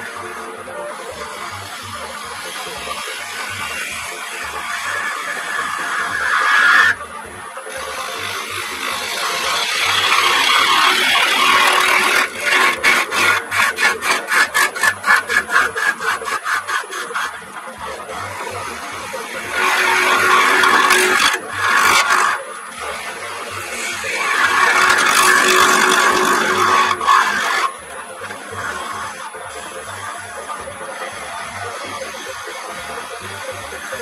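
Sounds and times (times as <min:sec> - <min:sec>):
lathe gouge scraping wood: 0:00.0 - 0:07.0, 0:07.7 - 0:34.0.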